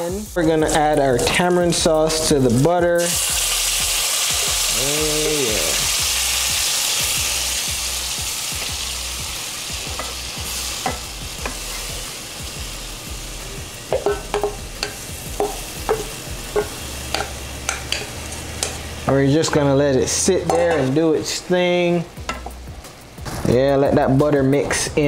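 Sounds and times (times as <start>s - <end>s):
sauce sizzling in a frying pan: 0.0s - 23.4s
spoon knocking against pan: 9.8s - 10.2s, 10.8s - 11.6s, 13.9s - 18.8s, 22.2s - 22.6s.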